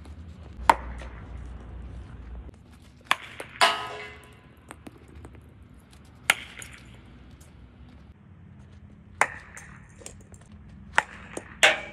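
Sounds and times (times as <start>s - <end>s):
cricket bat striking ball: 0.6s - 1.2s.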